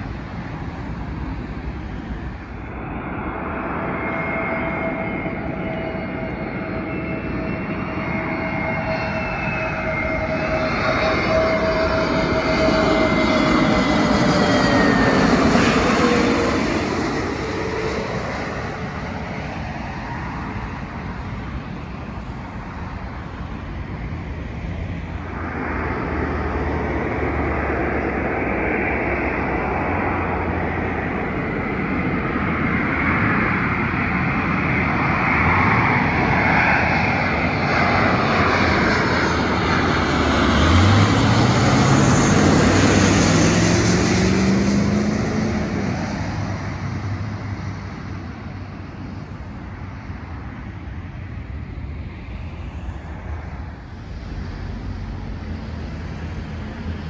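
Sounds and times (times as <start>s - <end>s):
jet airliner passing overhead: 0.0s - 57.0s.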